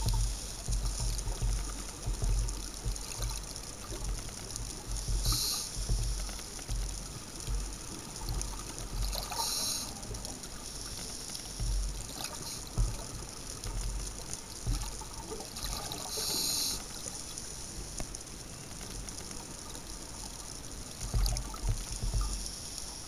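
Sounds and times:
low bumps and small clicks: 0.0s - 9.4s, 10.0s - 15.8s, 21.0s - 22.6s
faint underwater hiss: 0.0s - 23.0s
scuba exhaust bubbles gushing: 0.0s - 23.0s.

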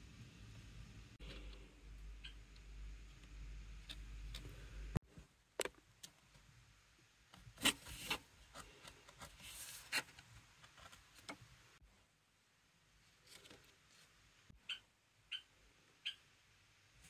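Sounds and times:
low steady hum: 0.0s - 13.2s.

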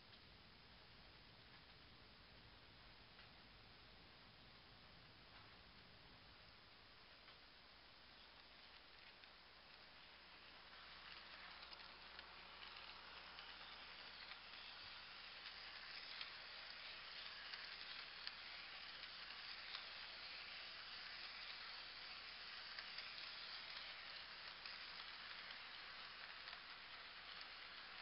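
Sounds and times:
model train wheels hissing on rail: 8.0s - 28.0s.

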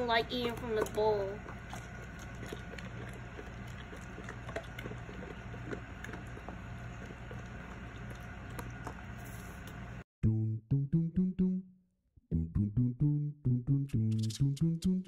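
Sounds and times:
steady low hum: 0.0s - 10.0s
dog chewing dry kibble: 0.2s - 9.5s.

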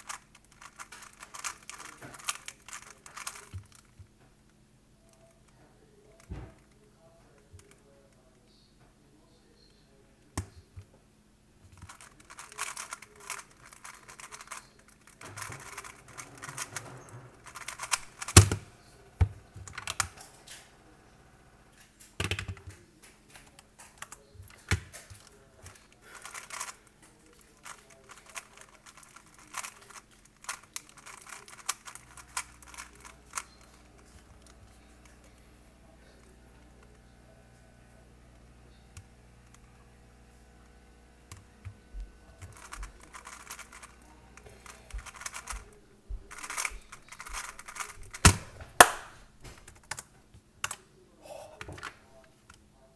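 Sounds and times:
speed cube clicking and rattling: 0.0s - 4.1s, 11.8s - 18.6s, 19.6s - 20.2s, 23.4s - 35.2s, 42.3s - 48.9s.

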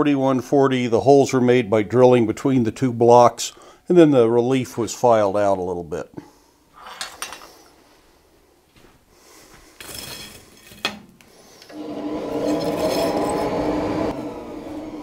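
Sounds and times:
metal tools clinking: 6.8s - 7.7s, 9.8s - 10.9s, 12.4s - 13.4s
forge blower humming: 11.7s - 15.0s.

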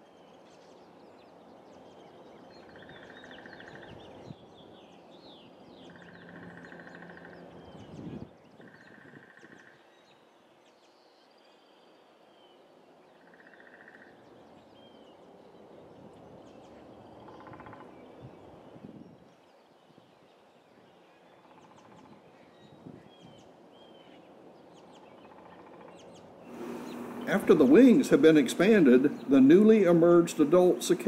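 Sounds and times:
bird chirps: 24.8s - 31.0s
bird trills: 25.0s - 31.0s
low hiss: 26.4s - 31.0s.

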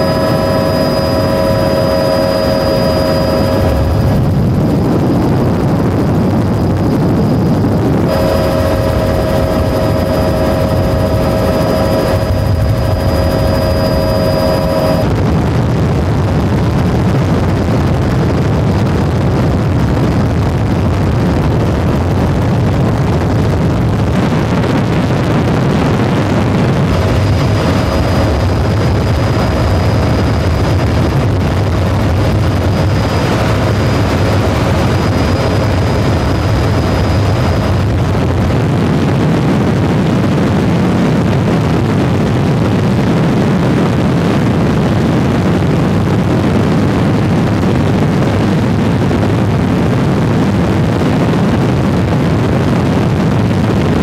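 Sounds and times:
steady whining tones: 0.0s - 18.4s, 23.4s - 41.3s
aircraft engine noise: 0.0s - 54.0s.

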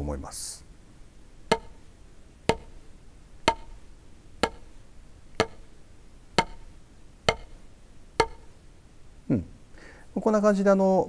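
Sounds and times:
drumsticks hitting a practice pad: 1.5s - 1.9s, 2.5s - 4.8s, 5.4s - 5.8s, 6.4s - 8.6s.

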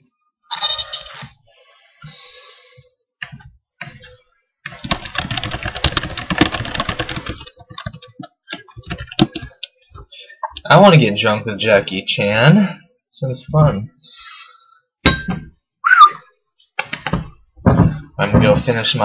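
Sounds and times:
computer keyboard typing: 4.7s - 9.7s.

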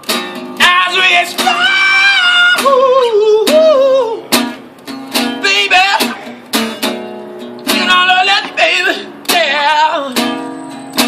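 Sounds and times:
acoustic guitar strumming: 0.0s - 11.0s
man singing: 0.6s - 4.4s, 5.4s - 6.4s, 7.6s - 10.3s.

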